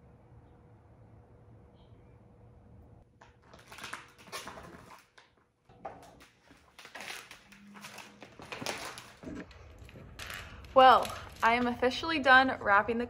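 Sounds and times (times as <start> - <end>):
vinyl film crinkling and rustling: 3.2 - 12.1.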